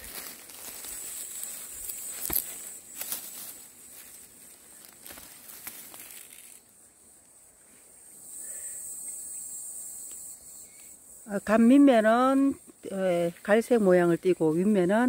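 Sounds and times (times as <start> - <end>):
dry grass and leaves rustling: 0.0 - 8.0
high insect chirring: 0.0 - 15.0.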